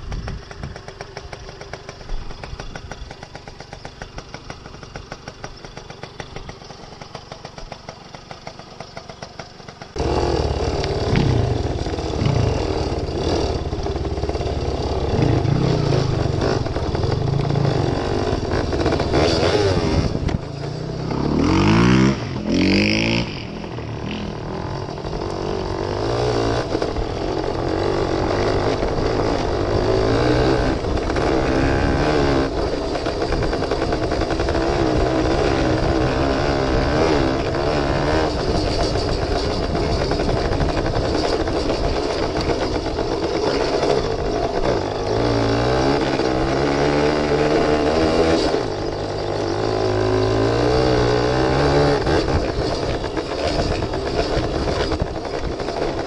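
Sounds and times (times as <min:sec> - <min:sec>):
two-stroke motorcycle engine: 0:00.0 - 0:56.0.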